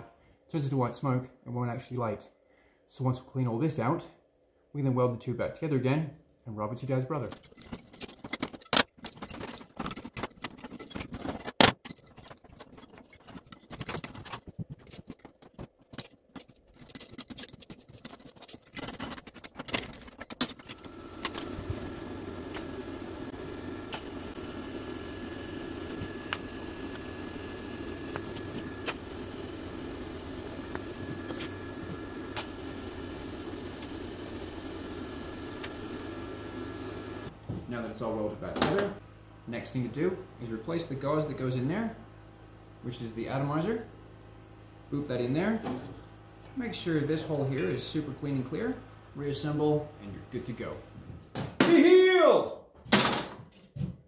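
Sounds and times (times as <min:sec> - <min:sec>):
screwdriver scraping metal: 0:07.2 - 0:21.6
welding machine fan hum: 0:12.2 - 0:38.1.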